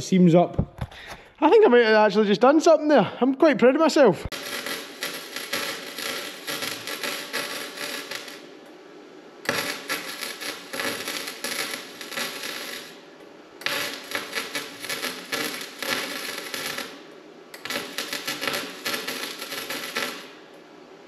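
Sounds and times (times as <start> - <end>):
arc welder welding steel: 4.2 - 20.8.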